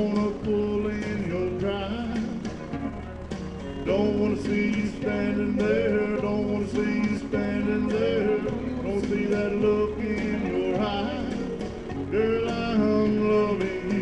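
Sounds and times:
man singing into microphone: 0.0 - 2.5, 3.8 - 14.0
backing track with steady beat: 0.0 - 14.0.

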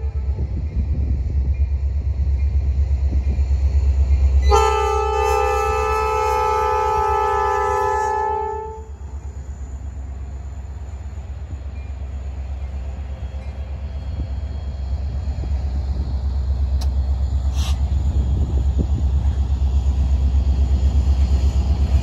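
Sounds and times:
locomotive horn: 0.0 - 0.6, 4.4 - 9.0
locomotive engine and wheels rumbling: 0.0 - 22.0.

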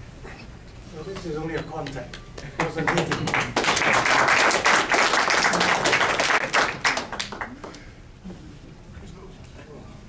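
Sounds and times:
group clapping: 1.5 - 7.8.

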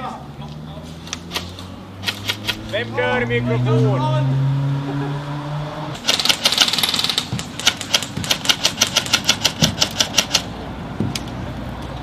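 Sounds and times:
airsoft guns firing: 1.3 - 2.7, 6.0 - 10.5.

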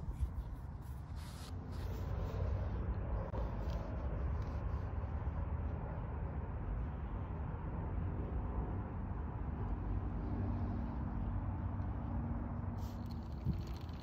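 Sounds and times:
bike tyre and drivetrain noise: 0.0 - 6.0, 9.6 - 14.0
bike clicks and rattles: 13.0 - 14.0
wind rumble on microphone: 13.0 - 14.0.

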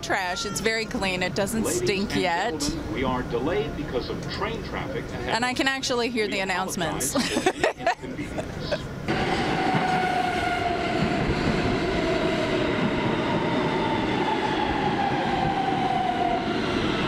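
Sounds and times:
train wheels rumbling on rail: 9.0 - 17.0.

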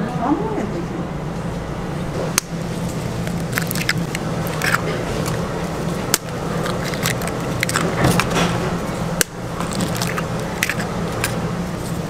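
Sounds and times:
steady low hum: 0.0 - 12.0
eggshells cracking: 2.4 - 11.5.

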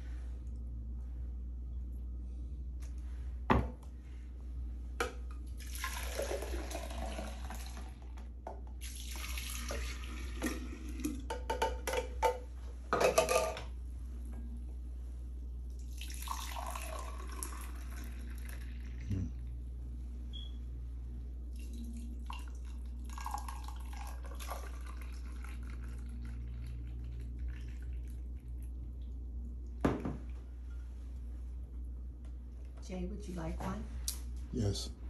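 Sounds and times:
steady low hum: 0.0 - 35.0
juice pouring and splashing: 5.5 - 11.3, 15.7 - 19.1, 21.5 - 29.2.

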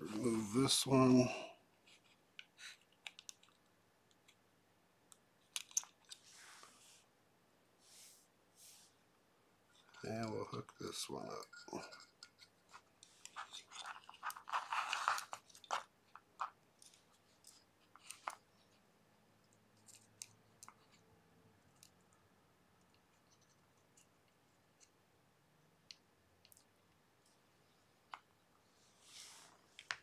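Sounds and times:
small clicks and ticks: 2.4 - 4.4, 5.1 - 6.2, 19.4 - 21.0, 21.6 - 22.2, 25.8 - 27.4
wire crackling and scraping: 11.3 - 18.7.

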